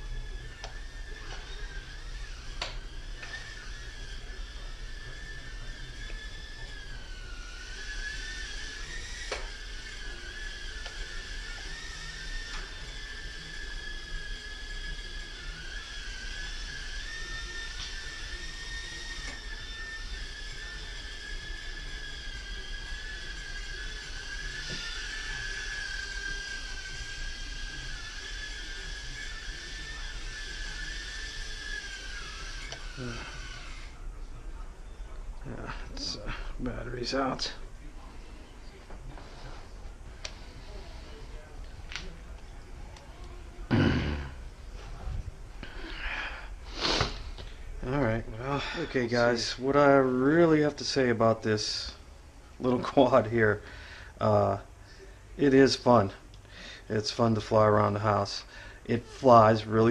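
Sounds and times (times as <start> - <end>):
quadcopter fans whining: 0.0 - 59.9.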